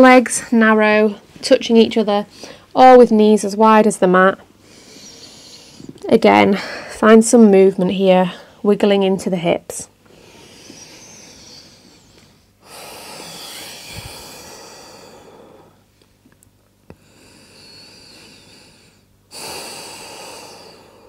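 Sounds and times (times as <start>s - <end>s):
person breathing deeply: 4.6s - 7.0s, 10.1s - 15.9s, 16.9s - 21.0s.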